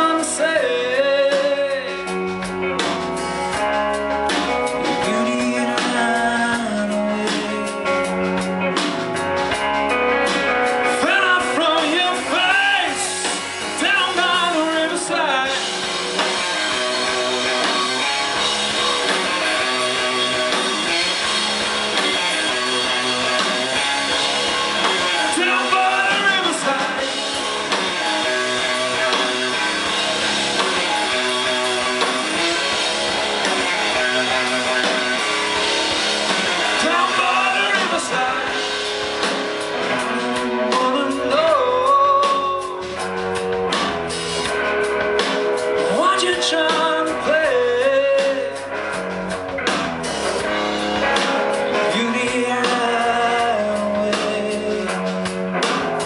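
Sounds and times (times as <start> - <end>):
lead vocal singing: 0.0 - 2.4, 4.5 - 8.9, 10.8 - 18.1, 21.8 - 32.6, 36.2 - 43.3, 45.6 - 48.8, 51.0 - 55.4
bass guitar: 0.0 - 56.0
drum kit: 0.0 - 56.0
electric guitar: 0.0 - 56.0.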